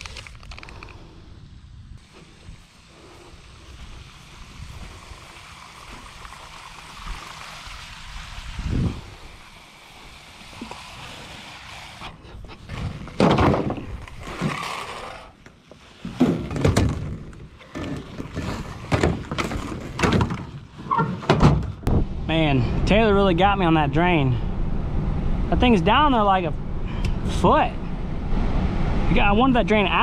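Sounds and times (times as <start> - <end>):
water jetting from hose onto grass: 2.0 - 12.2
plastic hose clattering and rustling: 12.0 - 21.9
thump: 13.2 - 13.8, 21.2 - 22.1.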